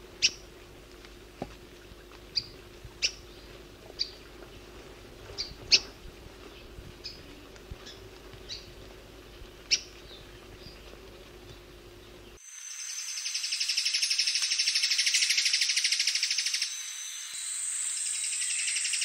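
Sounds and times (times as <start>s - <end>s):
recording hum: 0.0s - 19.0s.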